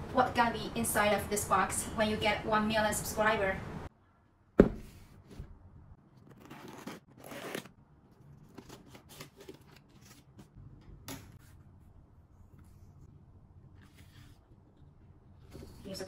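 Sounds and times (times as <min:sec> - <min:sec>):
box knocking on wooden table: 0:04.6 - 0:04.9.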